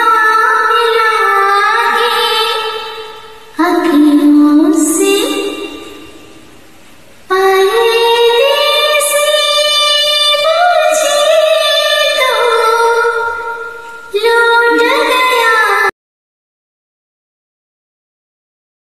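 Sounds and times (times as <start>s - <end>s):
woman singing to karaoke: 0.0s - 6.1s, 7.3s - 15.9s.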